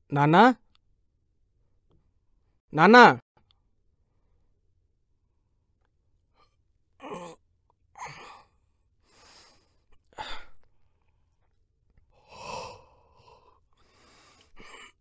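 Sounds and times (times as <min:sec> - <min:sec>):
man sighing: 0:07.0 - 0:07.4.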